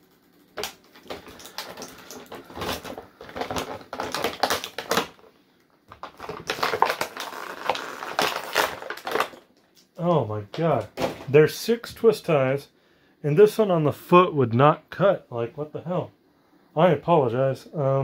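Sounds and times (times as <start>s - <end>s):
plastic packaging crinkling: 0.6s - 5.3s, 5.9s - 9.6s.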